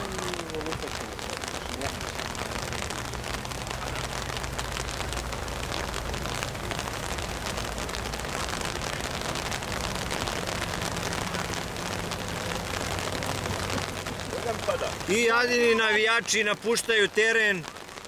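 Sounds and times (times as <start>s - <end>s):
steady rain falling: 0.0s - 18.0s.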